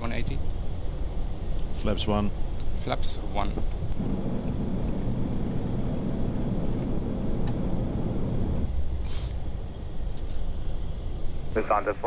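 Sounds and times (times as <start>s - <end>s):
airplane cabin engine rumble: 0.0s - 12.0s
brief hiss: 9.0s - 9.4s.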